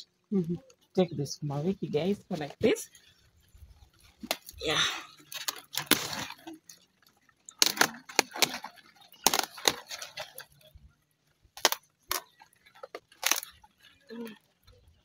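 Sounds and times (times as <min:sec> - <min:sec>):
leafy crackle: 0:01.8 - 0:15.0
leaves snapping off stalks: 0:05.2 - 0:10.6, 0:11.6 - 0:13.6.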